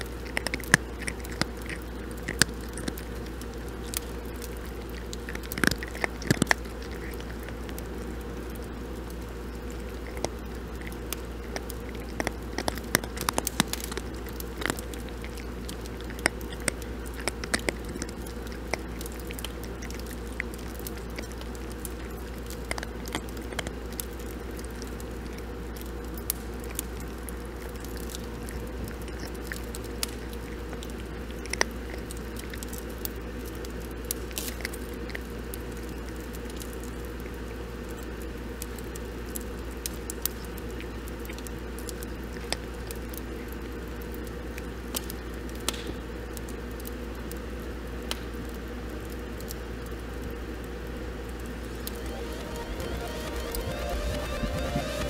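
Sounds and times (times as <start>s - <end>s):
cats crunching dry kibble: 0.0s - 55.0s
low hum: 51.6s - 55.0s.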